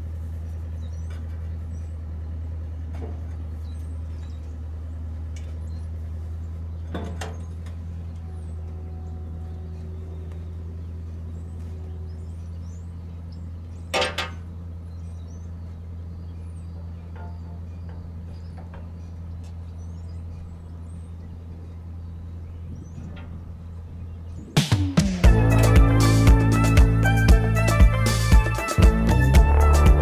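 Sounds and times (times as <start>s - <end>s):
engine idling: 0.0s - 30.0s
metal clanking: 13.9s - 14.5s, 16.8s - 19.1s.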